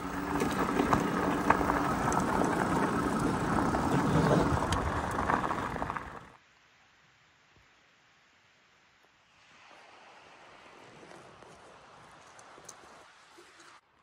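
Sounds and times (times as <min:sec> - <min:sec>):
tyres rolling on gravel with wind: 0:00.0 - 0:06.4, 0:09.8 - 0:13.8.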